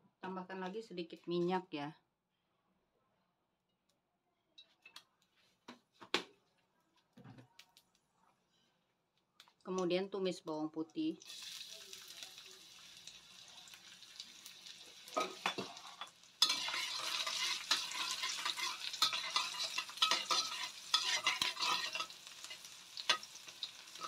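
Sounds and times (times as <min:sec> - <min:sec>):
garlic sizzling in hot oil: 0:11.2 - 0:24.0
metal spatula scraping wok: 0:15.2 - 0:24.0.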